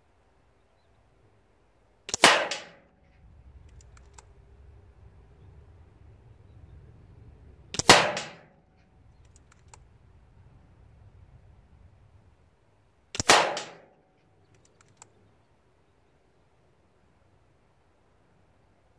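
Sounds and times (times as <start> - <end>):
air rifle shots: 2.1 - 2.9, 7.7 - 8.6, 13.2 - 14.0
faint clicks: 3.0 - 4.5, 8.8 - 9.9, 13.2 - 15.4.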